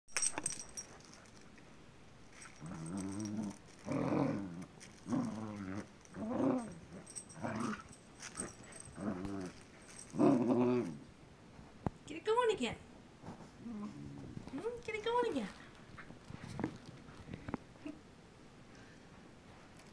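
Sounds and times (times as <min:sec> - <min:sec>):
puppy growling in play: 0:02.4 - 0:11.1, 0:13.5 - 0:14.6.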